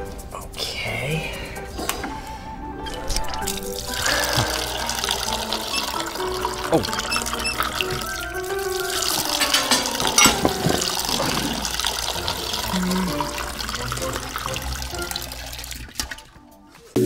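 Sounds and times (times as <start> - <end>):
juice pouring into a glass jar: 2.9 - 9.4, 10.0 - 16.0.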